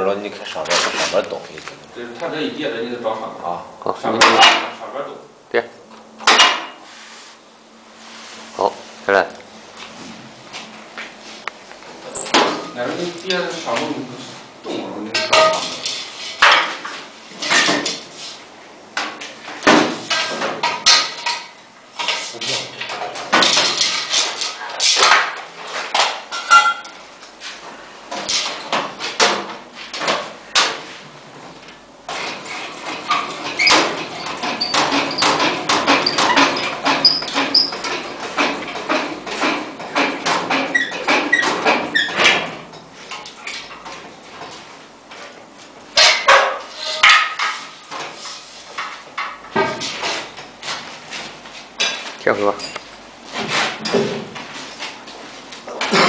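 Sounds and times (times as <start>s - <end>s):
short high squeaks: 12.1s - 12.4s
metal knocks and clatters: 32.1s - 44.6s.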